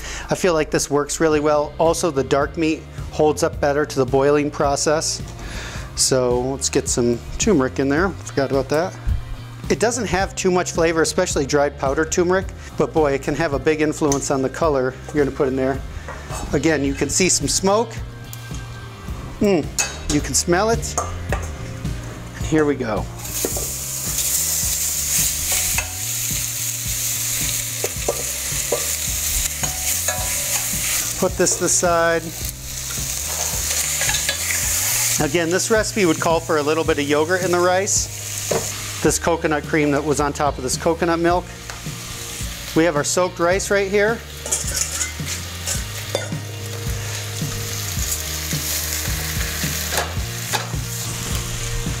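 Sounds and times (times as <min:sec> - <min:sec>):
chicken sizzling in hot oil: 0:23.2 - 0:52.0
utensil scraping pot: 0:27.8 - 0:31.8, 0:32.9 - 0:35.2, 0:44.4 - 0:46.3.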